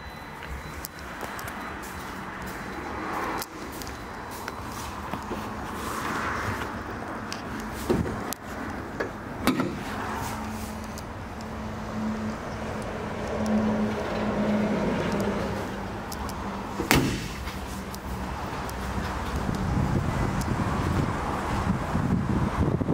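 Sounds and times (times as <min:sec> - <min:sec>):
clicks and knocks of car bonnet: 0:09.0 - 0:09.9, 0:16.8 - 0:17.6
car bonnet slamming closed: 0:09.4 - 0:09.8, 0:16.8 - 0:17.5.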